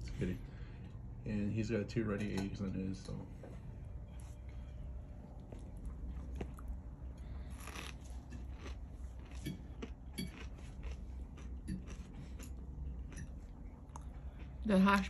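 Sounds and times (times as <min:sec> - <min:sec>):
low steady hum: 0:00.0 - 0:15.0
person chewing food: 0:04.1 - 0:15.0.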